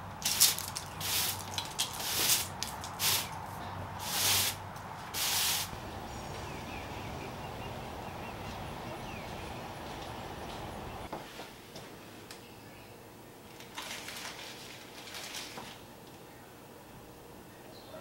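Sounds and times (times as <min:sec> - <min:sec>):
broom sweeping pavers: 0:00.0 - 0:11.6
steady outdoor hiss: 0:00.0 - 0:18.0
bird chirping: 0:05.7 - 0:11.1.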